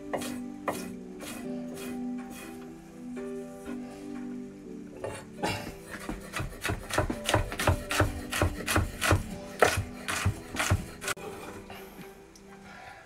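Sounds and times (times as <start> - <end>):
knife chopping on wooden board: 0.2 - 1.4, 5.9 - 11.2.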